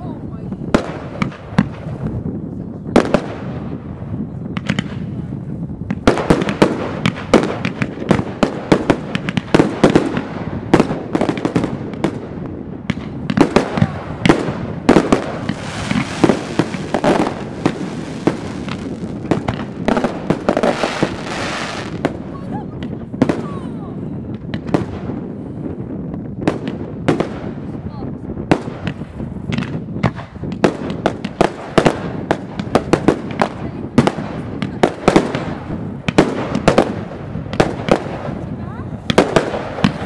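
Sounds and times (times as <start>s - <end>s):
firework shells bursting: 5.9s - 23.5s, 28.5s - 40.0s.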